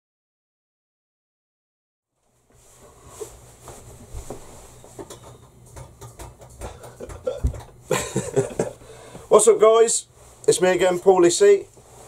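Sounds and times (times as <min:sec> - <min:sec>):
person shifting knocks and rustles: 0:02.5 - 0:09.3.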